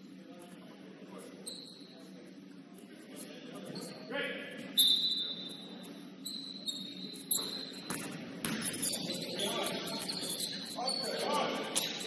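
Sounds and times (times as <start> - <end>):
murmur of gym: 0.0 - 12.0
shoes squeaking on court: 1.2 - 4.1, 4.7 - 12.0
basketball bouncing: 7.8 - 8.9.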